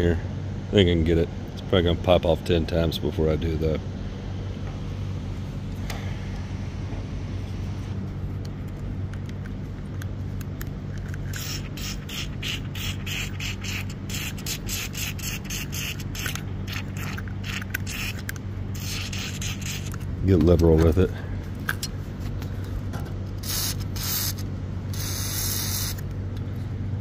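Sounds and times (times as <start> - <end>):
steady low hum: 0.0 - 27.0
aerosol spray hisses: 25.0 - 26.0.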